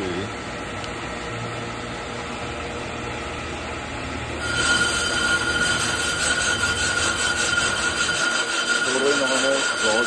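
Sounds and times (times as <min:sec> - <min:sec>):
high-pitched cutting squeal: 0:04.4 - 0:10.0
lathe motor hum: 0:04.4 - 0:10.0.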